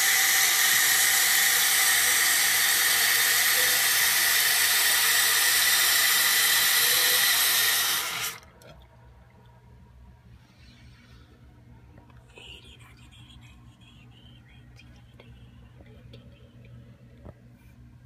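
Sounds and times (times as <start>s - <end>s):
toilet tank refilling with whistling hiss: 0.0s - 8.4s.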